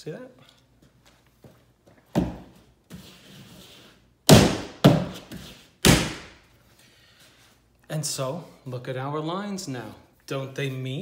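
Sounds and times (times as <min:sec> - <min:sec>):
sharp thuds: 0:04.3 - 0:06.4.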